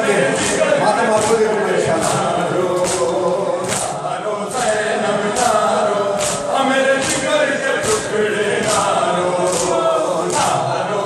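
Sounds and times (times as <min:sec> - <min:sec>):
men chanting a lament: 0:00.0 - 0:11.0
hands slapping chests: 0:00.4 - 0:04.7, 0:06.2 - 0:10.6.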